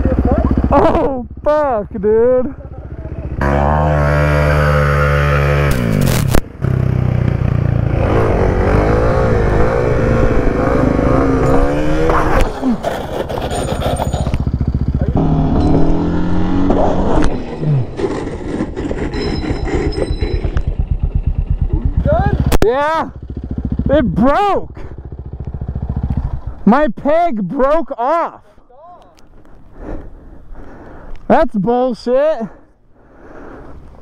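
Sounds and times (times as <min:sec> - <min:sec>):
motorcycle engine idling: 0:00.0 - 0:03.4, 0:12.6 - 0:16.1, 0:17.8 - 0:26.7
motorcycle engine revving: 0:00.0 - 0:26.7
motorcycle scraping on asphalt: 0:02.8 - 0:22.4.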